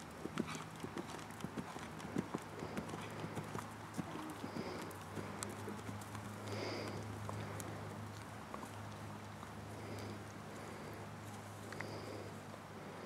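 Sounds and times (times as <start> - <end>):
horse hoofbeats on sand: 0.0 - 7.0
steady low hum: 0.0 - 13.0.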